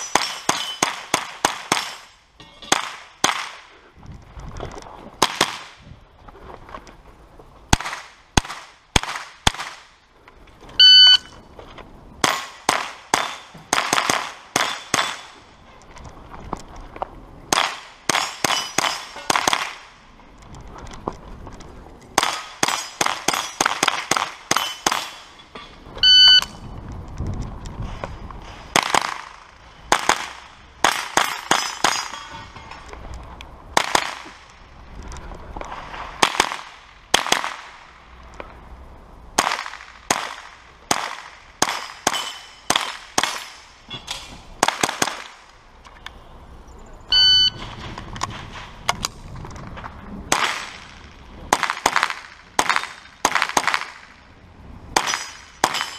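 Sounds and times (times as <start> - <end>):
rifle shots: 0.0 - 2.1, 12.2 - 15.4
loud ringing tone: 10.8 - 11.4, 26.0 - 26.6, 47.1 - 47.6.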